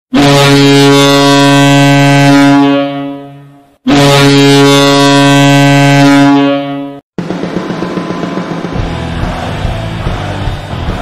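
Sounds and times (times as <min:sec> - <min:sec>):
goal horn blasts: 0:00.1 - 0:07.0.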